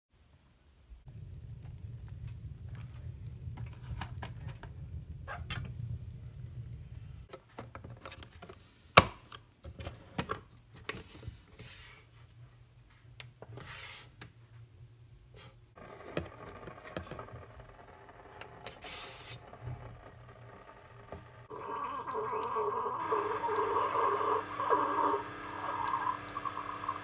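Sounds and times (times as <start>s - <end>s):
wood fire crackling: 0.9s - 7.3s, 15.8s - 27.0s.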